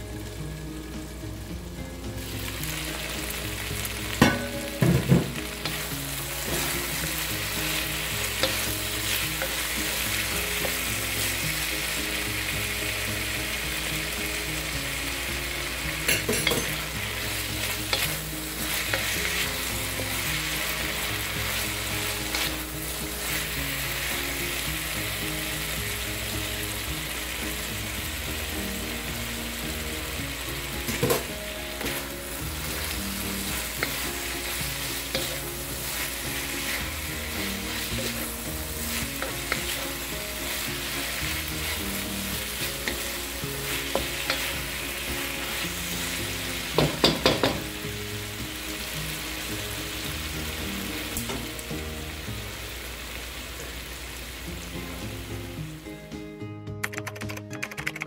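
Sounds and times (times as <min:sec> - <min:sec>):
beans sizzling in oil: 0:00.0 - 0:56.0
spatula knocking wok: 0:04.1 - 0:11.6, 0:17.6 - 0:24.1, 0:30.8 - 0:45.6, 0:46.6 - 0:47.8.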